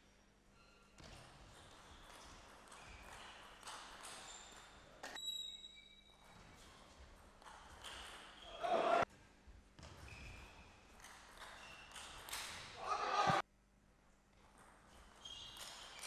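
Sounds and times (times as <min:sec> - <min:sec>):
crowd shouting and cheering: 0:08.6 - 0:09.0, 0:12.8 - 0:13.4.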